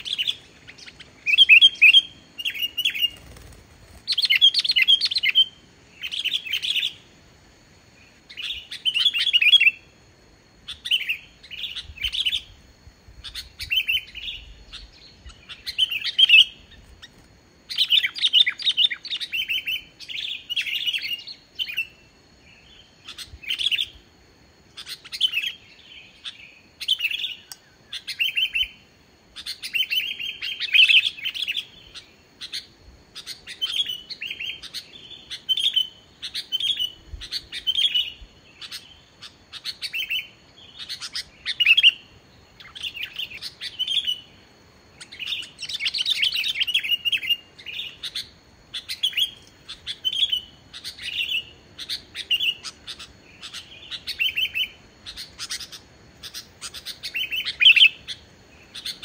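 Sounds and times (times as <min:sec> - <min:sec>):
bulbul singing: 0:00.0 - 0:07.1, 0:45.0 - 0:59.0.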